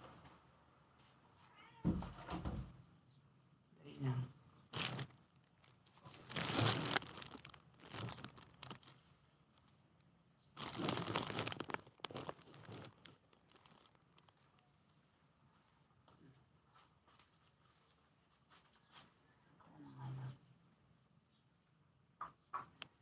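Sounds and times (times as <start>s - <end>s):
rustling and crinkling: 4.5s - 19.4s.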